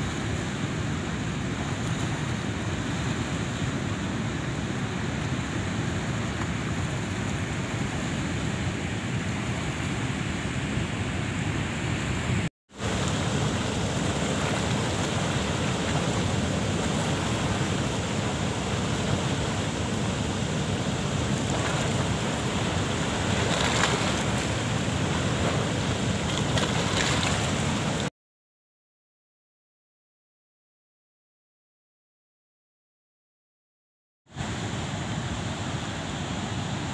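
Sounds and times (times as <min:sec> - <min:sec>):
water rushing over rocks: 0:00.0 - 0:28.1.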